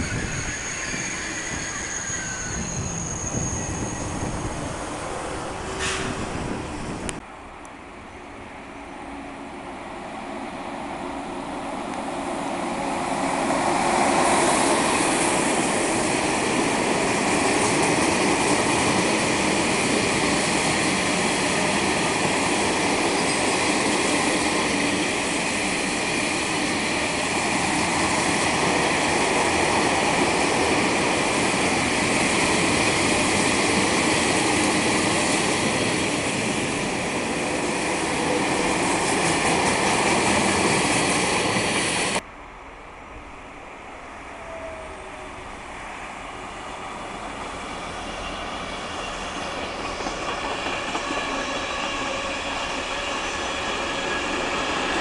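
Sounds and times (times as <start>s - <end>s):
freight train rumbling on rails: 0.0s - 55.0s.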